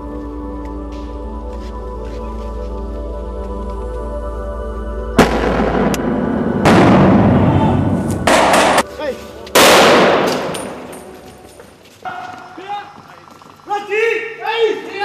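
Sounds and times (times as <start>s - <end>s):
gunshot: 5.2s - 8.8s, 9.6s - 10.9s
loud weapon blasts: 9.6s - 10.9s.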